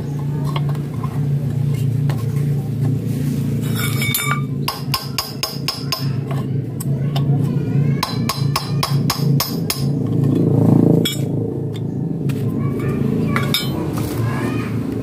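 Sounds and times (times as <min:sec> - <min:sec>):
steady low drone: 0:09.0 - 0:15.0.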